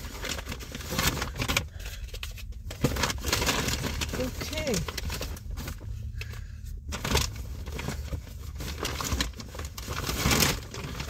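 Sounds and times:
shopping bag rustling: 0:00.0 - 0:01.8, 0:02.5 - 0:06.1, 0:06.8 - 0:11.0
low steady hum: 0:00.0 - 0:11.0.

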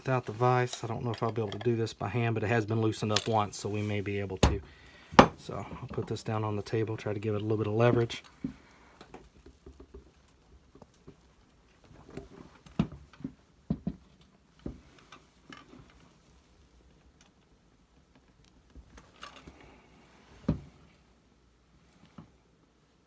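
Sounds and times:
tools clicking and knocking on wood: 0:00.7 - 0:01.8.

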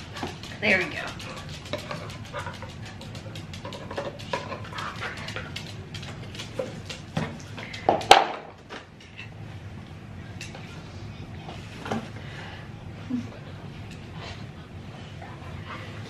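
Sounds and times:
dog claws clicking: 0:00.0 - 0:07.1.

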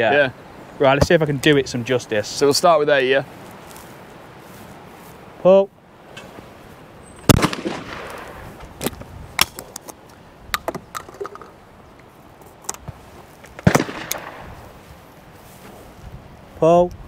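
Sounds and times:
shotgun shots with echo: 0:07.3 - 0:08.4, 0:13.6 - 0:14.6
shotgun breaking open clicks: 0:13.6 - 0:14.4.

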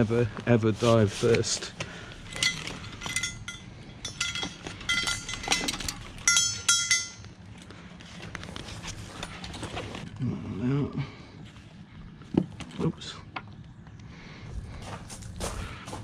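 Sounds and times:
metal harness fittings clinking: 0:02.1 - 0:07.7.

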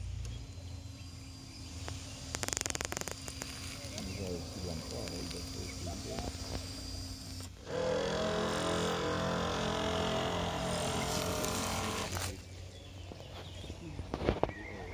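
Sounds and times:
faint chirps: 0:00.0 - 0:07.4
model boat motor humming: 0:00.0 - 0:14.9.

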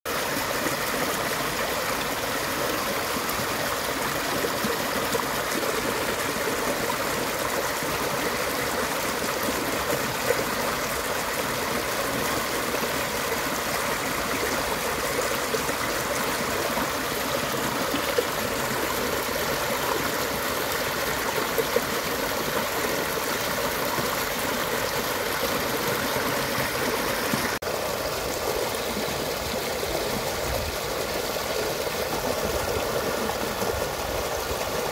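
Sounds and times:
stream rushing over rapids: 0:00.1 - 0:34.9.

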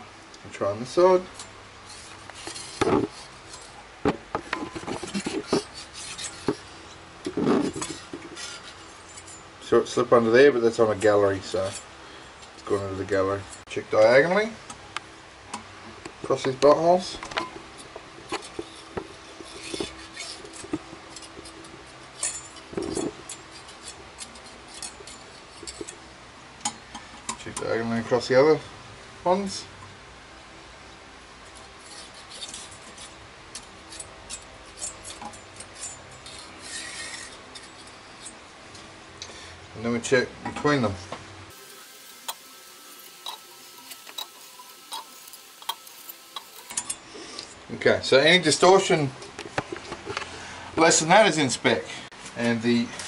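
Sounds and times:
metal scraping on metal: 0:01.4 - 0:03.8, 0:04.4 - 0:13.7, 0:16.3 - 0:26.0, 0:31.4 - 0:38.4, 0:41.5 - 0:47.6.

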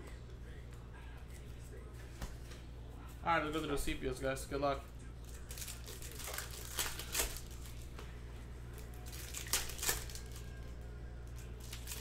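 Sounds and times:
low electrical hum: 0:00.0 - 0:12.0
foil wrapper crinkling: 0:05.2 - 0:07.9, 0:08.8 - 0:10.7, 0:11.3 - 0:12.0.

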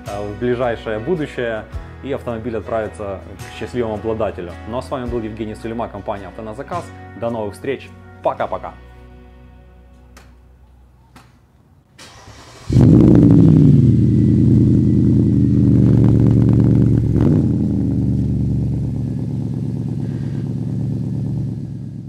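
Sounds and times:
car engine starting and idling: 0:12.0 - 0:22.0.

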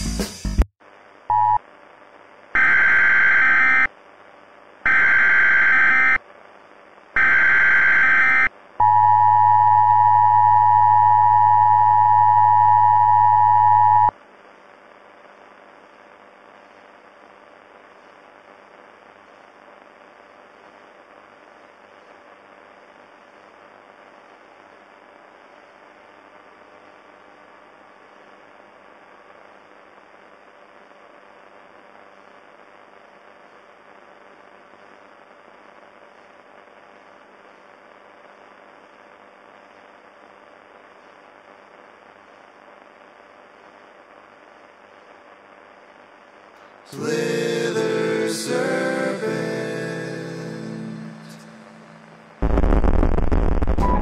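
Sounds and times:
screechy data bursts: 0:02.6 - 0:03.9, 0:04.9 - 0:06.2, 0:07.2 - 0:08.5
low steady hiss: 0:11.6 - 0:54.0
two-tone alert signal: 0:53.8 - 0:54.0.

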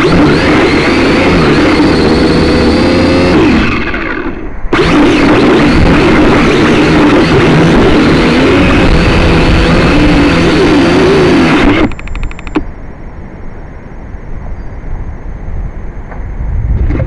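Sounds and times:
drone motors whining: 0:00.0 - 0:12.7
faint high whine: 0:00.0 - 0:17.0
rapid clicks: 0:11.4 - 0:12.7
low rumble: 0:15.1 - 0:17.0.

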